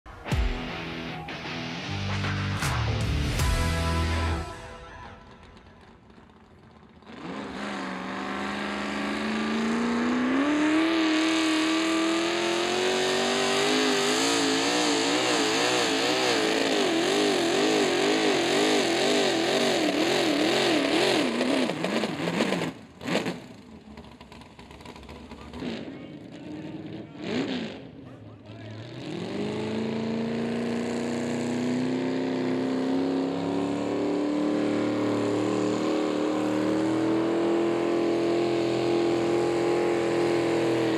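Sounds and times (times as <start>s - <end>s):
quieter engine running: 0.6s - 16.4s
tractor engine revving hard: 5.1s - 28.0s, 28.6s - 40.9s.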